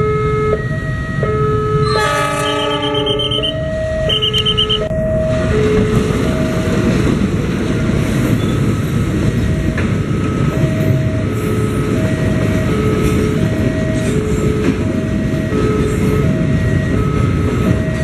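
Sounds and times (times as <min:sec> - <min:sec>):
crossing alarm two-note chime: 0:00.0 - 0:07.2
train rumbling and wheel clatter: 0:00.0 - 0:18.0.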